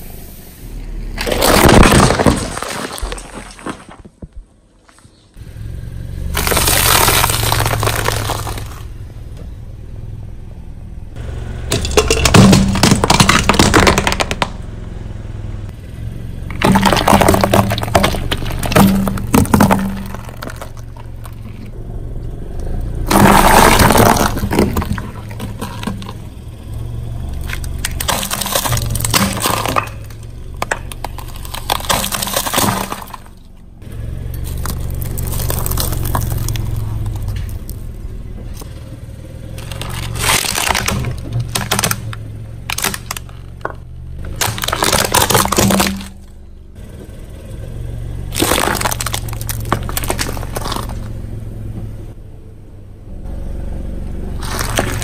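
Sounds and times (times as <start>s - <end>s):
car engine hum: 0.0s - 55.0s
tyre crushing brittle objects: 1.2s - 5.2s, 6.3s - 8.9s, 11.7s - 14.6s, 16.5s - 21.8s, 23.1s - 33.5s, 34.3s - 38.8s, 39.5s - 46.3s, 48.3s - 51.2s, 54.4s - 55.0s.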